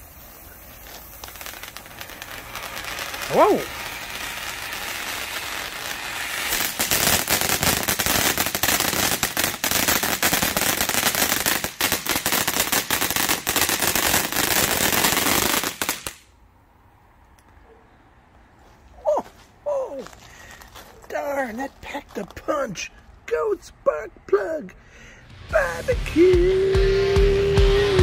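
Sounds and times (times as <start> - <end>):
firework fountain hissing: 0.0 - 16.3
dense crackling: 0.7 - 14.3.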